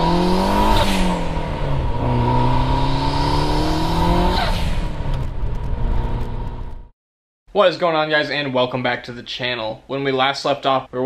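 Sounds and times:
turbocharged engine accelerating: 0.0s - 6.9s.

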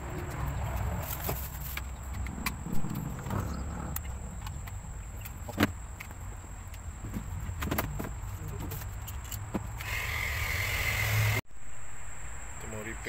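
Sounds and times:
steady low rumble: 0.0s - 7.6s.

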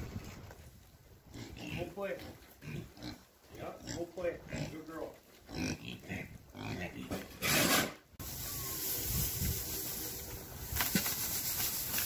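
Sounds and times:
hay rustling and scraping: 7.4s - 12.0s.

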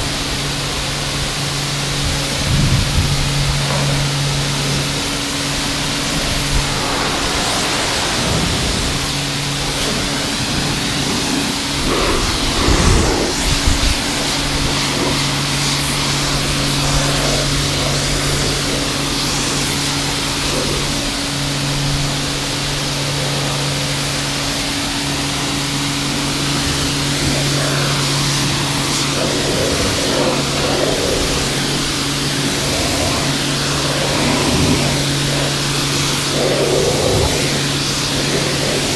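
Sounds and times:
pressure washer pump humming: 0.0s - 38.9s
water spray hissing on car: 0.0s - 38.9s
low bumps: 2.1s - 19.1s.

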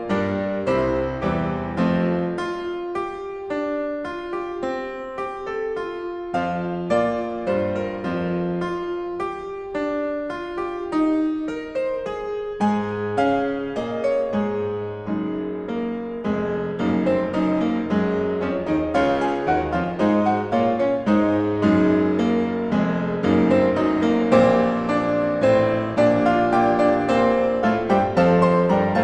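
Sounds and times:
piano music: 0.0s - 29.0s.

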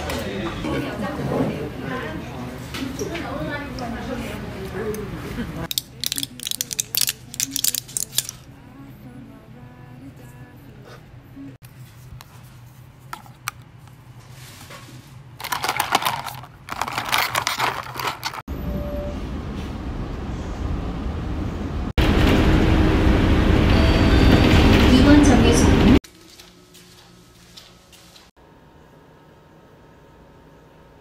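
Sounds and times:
ice and straw rattling in cup: 5.7s - 8.5s, 15.4s - 18.4s
moving bus rumble: 18.5s - 26.0s.

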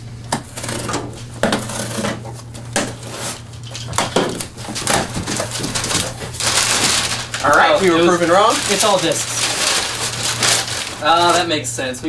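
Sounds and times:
cardboard flaps tearing open: 0.3s - 11.5s
blade scraping packing tape: 0.5s - 2.2s, 4.6s - 11.4s.

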